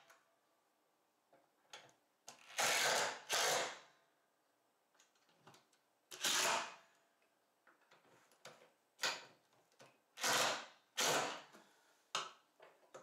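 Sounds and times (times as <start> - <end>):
cordless drill driving screws: 2.4 - 3.8, 6.1 - 6.8, 10.2 - 11.4.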